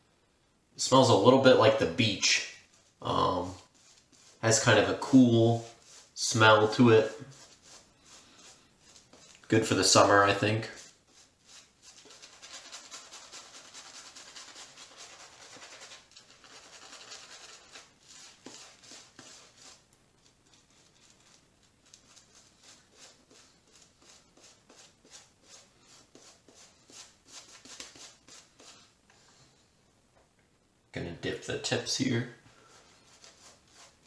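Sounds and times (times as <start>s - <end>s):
shaving brush scrubbing lather: 1.0s - 28.9s, 32.6s - 34.0s.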